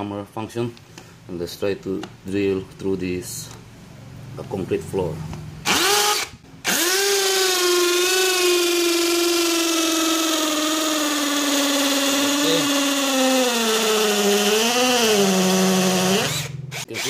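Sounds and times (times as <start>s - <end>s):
hammer drill boring into concrete: 5.7s - 17.0s.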